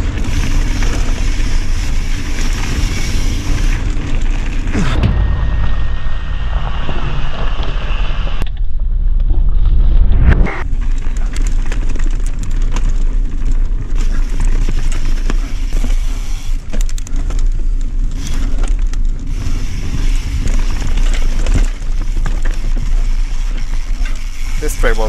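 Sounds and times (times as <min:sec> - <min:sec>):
bike rattling with clicks: 0:00.0 - 0:04.7, 0:10.6 - 0:25.0
bike tyres over dirt and roots: 0:00.0 - 0:25.0.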